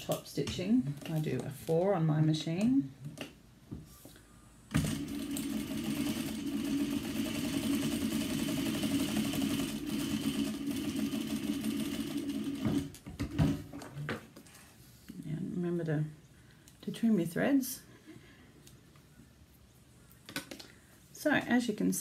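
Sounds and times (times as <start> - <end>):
sewing machine running: 4.7 - 13.0.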